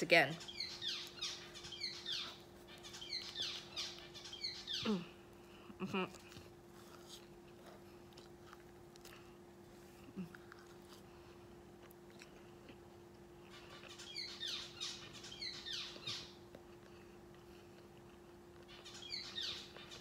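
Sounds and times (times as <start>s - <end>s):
steady low hum: 0.0s - 20.0s
faint chewing and mouth clicks: 5.2s - 14.3s, 15.9s - 20.0s.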